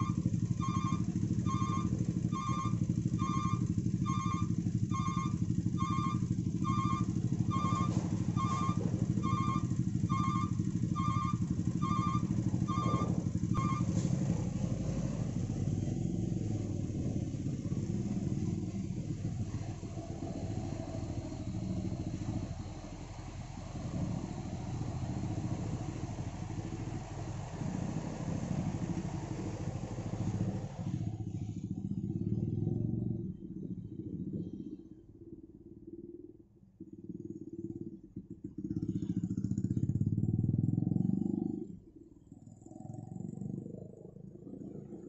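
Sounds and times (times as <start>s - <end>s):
electronic double beep: 0.0s - 13.9s
motorcycle and truck engines idling: 0.0s - 35.8s, 36.8s - 45.0s
deep engine rumble: 0.0s - 45.0s.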